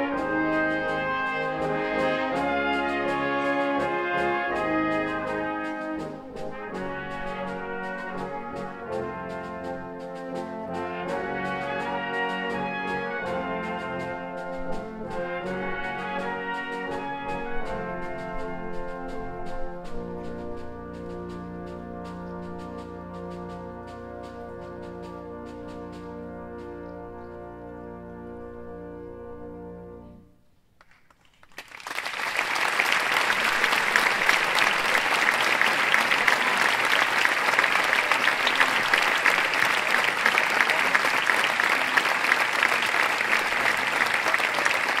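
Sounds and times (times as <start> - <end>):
brass ensemble holding a chord: 0.0 - 30.4, 32.7 - 45.0
audience applause: 30.8 - 45.0.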